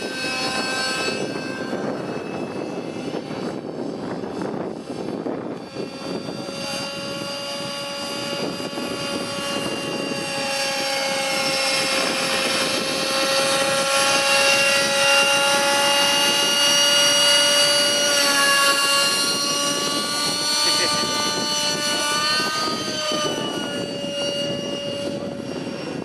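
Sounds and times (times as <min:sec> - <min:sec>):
model helicopter engine whine: 0:00.0 - 0:26.0.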